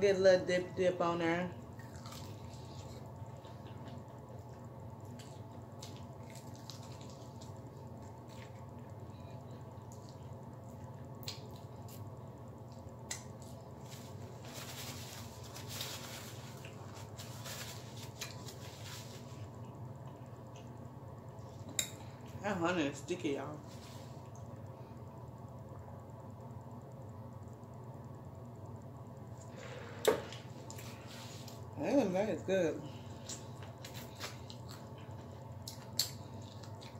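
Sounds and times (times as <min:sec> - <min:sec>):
steady low hum: 0:00.0 - 0:36.9
chewing and lip-smacking: 0:01.7 - 0:09.0, 0:09.6 - 0:12.1, 0:33.2 - 0:36.9
paper napkin rustling: 0:13.8 - 0:19.5.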